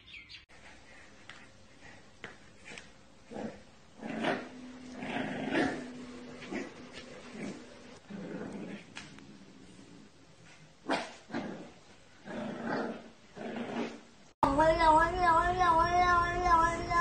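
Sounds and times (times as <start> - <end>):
puppy growling: 2.6 - 9.6, 11.3 - 14.1.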